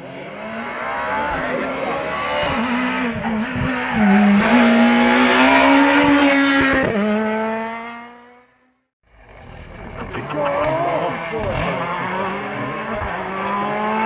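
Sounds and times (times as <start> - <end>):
rally car engine revving: 0.0 - 14.0.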